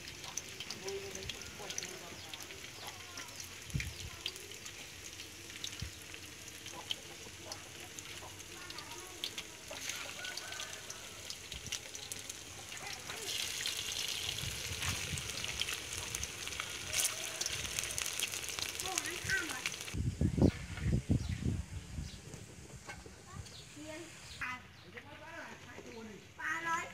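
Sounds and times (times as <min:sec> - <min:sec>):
tofu frying in hot oil: 0:00.0 - 0:20.0.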